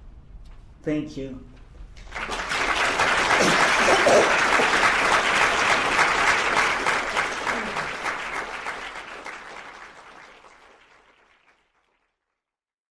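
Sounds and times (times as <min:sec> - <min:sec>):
audience applauding: 0:02.0 - 0:12.2.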